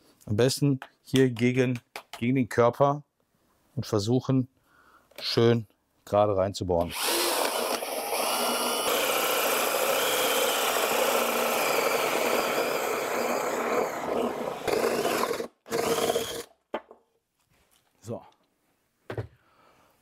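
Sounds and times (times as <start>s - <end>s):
cordless drill cutting board: 6.8s - 16.5s.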